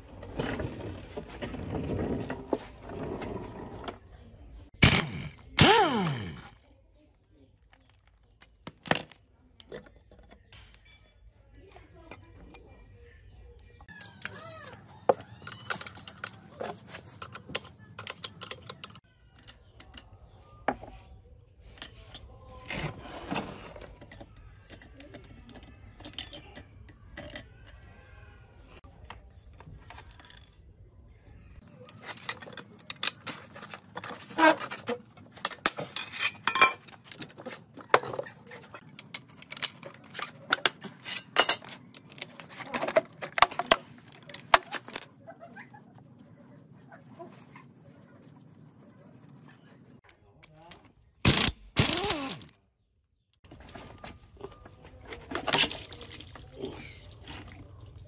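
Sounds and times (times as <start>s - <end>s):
metal tools clinking on engine parts: 14.0s - 20.2s, 23.8s - 27.8s, 29.2s - 30.7s, 31.9s - 45.2s.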